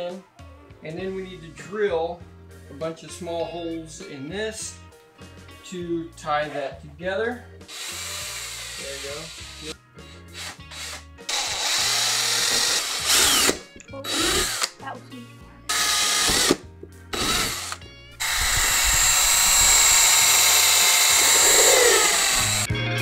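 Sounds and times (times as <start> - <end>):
background music: 0.0 - 23.0
power drill boring holes: 7.7 - 9.7, 10.3 - 14.8, 15.7 - 22.7.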